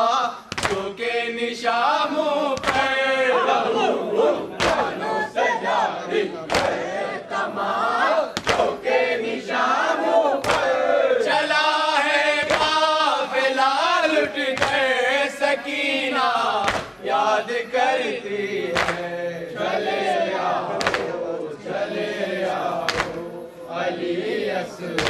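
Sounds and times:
men chanting together: 0.0s - 25.0s
chest-beating slaps: 0.5s - 0.8s, 2.6s - 2.9s, 4.6s - 5.0s, 6.5s - 6.8s, 8.4s - 8.8s, 10.4s - 10.7s, 12.4s - 12.8s, 16.6s - 17.0s, 18.7s - 19.0s, 20.7s - 21.2s, 22.8s - 23.3s.

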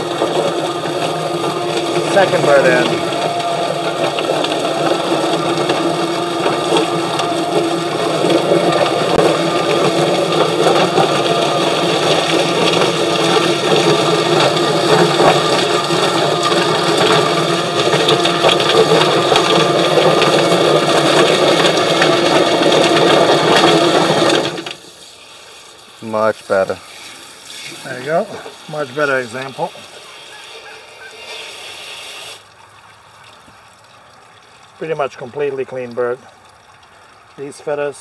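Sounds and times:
chicken plucker machine running: 0.0s - 32.4s
hose spraying water: 0.0s - 36.5s.

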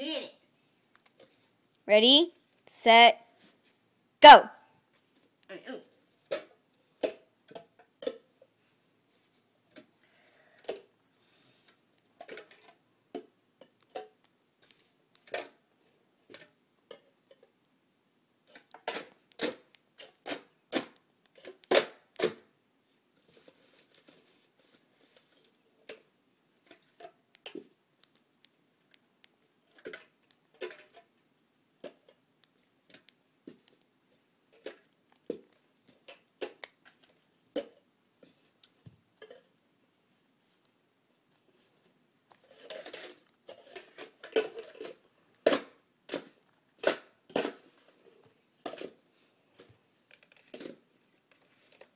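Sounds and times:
plastic cups clacking: 6.2s - 8.3s, 12.2s - 15.6s, 18.5s - 22.5s, 29.6s - 31.2s, 31.8s - 32.2s, 34.5s - 37.8s, 42.4s - 48.0s, 48.6s - 49.0s.

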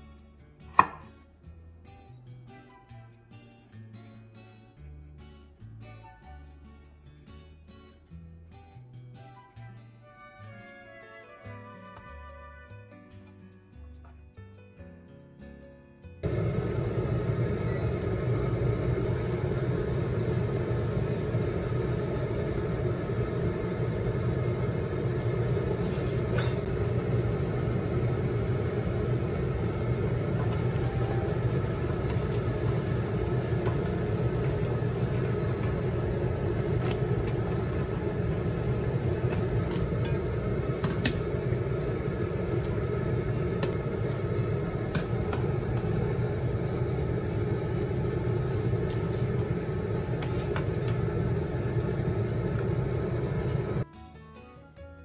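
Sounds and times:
water boiling in a pot: 16.2s - 53.8s.

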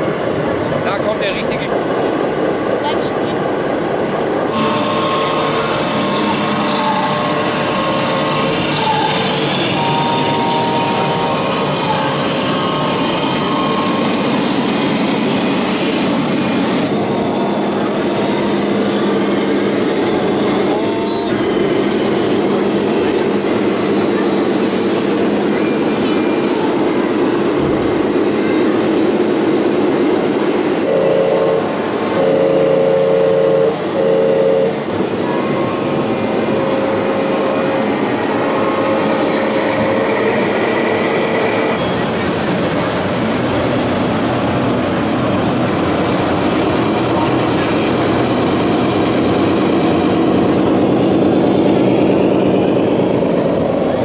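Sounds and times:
crowd chatter: 2.7s - 32.4s, 34.8s - 54.0s
air horn blasts: 4.5s - 14.1s, 30.8s - 36.0s.

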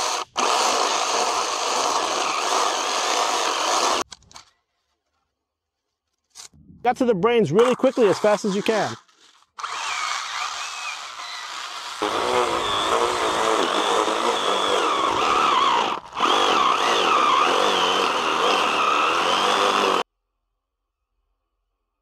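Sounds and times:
small electric chainsaw whining: 0.0s - 4.0s, 7.9s - 20.1s.

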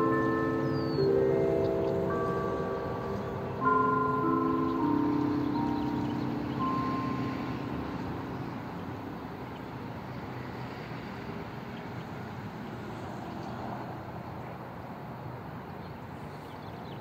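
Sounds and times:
church bell ringing: 0.0s - 11.1s.

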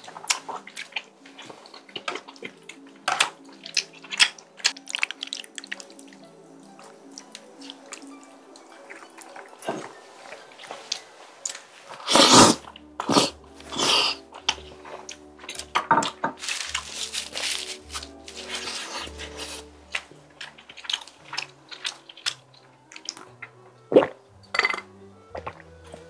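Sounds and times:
chewing: 0.0s - 24.2s
soft background music: 0.0s - 26.0s
person slurping noodles: 11.9s - 15.2s, 18.3s - 19.7s, 23.9s - 24.2s.

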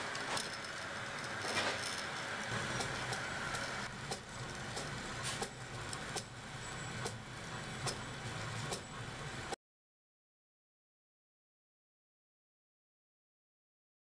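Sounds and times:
printer motors and fan whirring: 0.0s - 9.6s.

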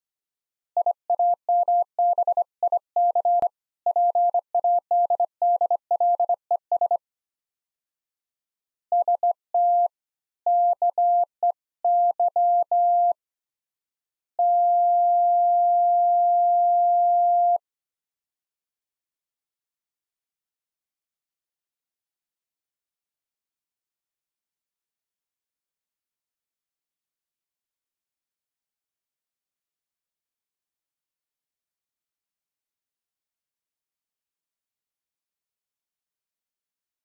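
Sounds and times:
morse code beeps: 0.8s - 7.0s, 9.0s - 9.9s, 11.9s - 13.2s, 14.4s - 17.6s.

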